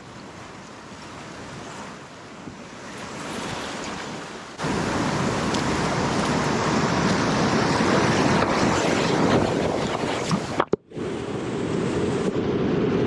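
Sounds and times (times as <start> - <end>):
whitewater rushing: 2.0 - 12.3.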